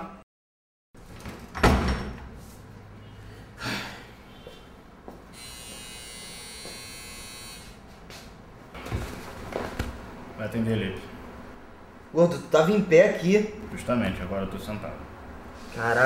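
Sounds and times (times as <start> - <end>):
electric doorbell buzzing: 5.3 - 7.8.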